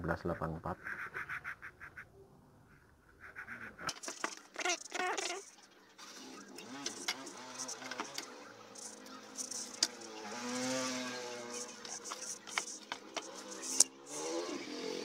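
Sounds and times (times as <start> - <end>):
passing vehicle engine: 6.0 - 15.0.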